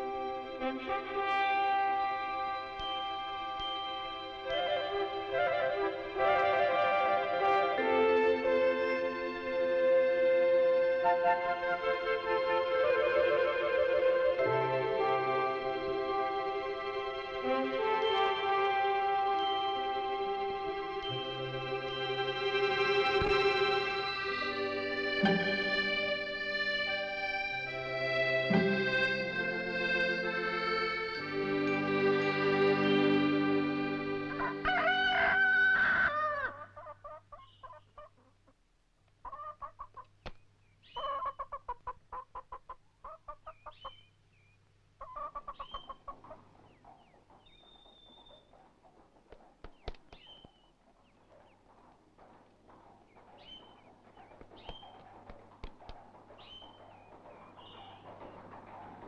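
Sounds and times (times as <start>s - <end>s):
instrumental music chords: 0.0s - 34.6s
chickens clucking: 23.0s - 44.1s, 45.0s - 59.0s
rooster crowing: 34.3s - 36.8s
small bird chirps: 37.3s - 38.2s, 39.3s - 41.7s, 42.4s - 51.9s, 53.0s - 58.9s.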